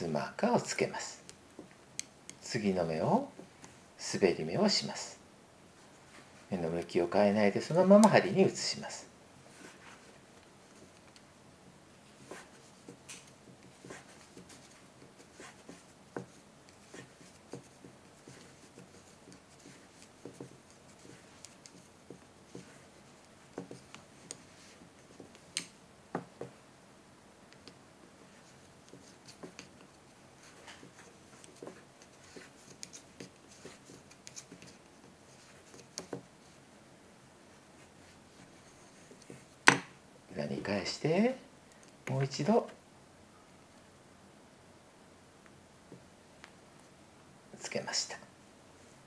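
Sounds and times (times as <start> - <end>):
wooden knitting needles clicking: 1.3 - 2.5, 12.3 - 26.6, 27.5 - 27.8, 28.4 - 36.3
yarn rubbing: 12.0 - 26.6, 27.5 - 36.7.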